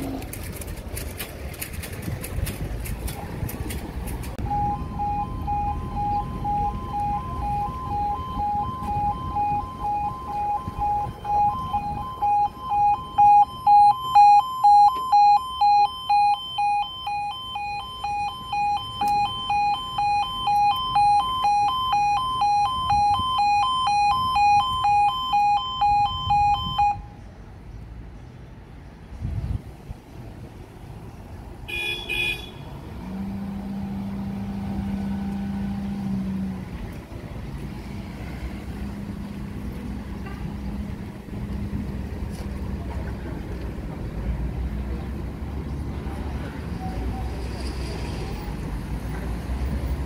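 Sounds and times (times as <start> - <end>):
two-tone crossing alarm warbling: 4.4 - 27.1.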